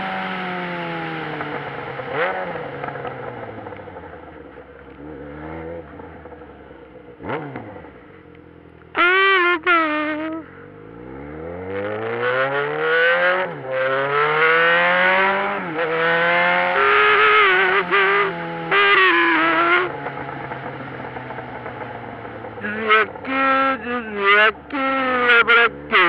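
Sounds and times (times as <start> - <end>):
motorcycle engine accelerating: 0.0 - 26.0
loud high-pitched tones: 9.0 - 10.5.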